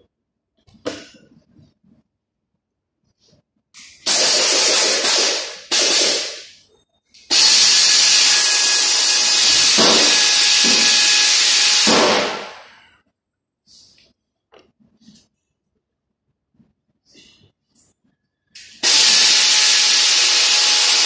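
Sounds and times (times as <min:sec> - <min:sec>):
compressed air hissing: 0:18.6 - 0:21.0.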